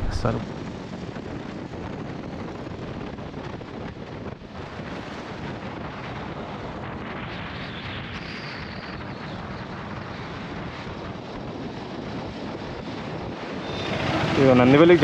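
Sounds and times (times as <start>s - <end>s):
road noise: 0.0s - 0.7s, 12.8s - 15.0s
wind rushing on microphone: 0.0s - 15.0s.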